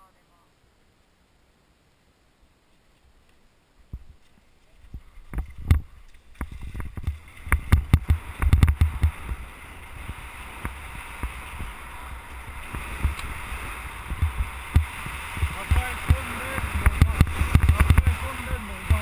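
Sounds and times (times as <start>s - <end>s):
wind rushing: 5.4s - 19.0s
skis running on snow: 6.5s - 19.0s.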